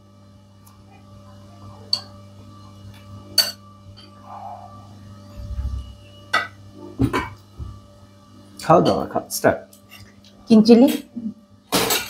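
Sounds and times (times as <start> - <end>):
steady low hum: 0.0 - 12.0
dishes clinking: 3.4 - 4.2, 6.3 - 7.4, 11.7 - 12.0
soft low rumble: 4.2 - 6.0.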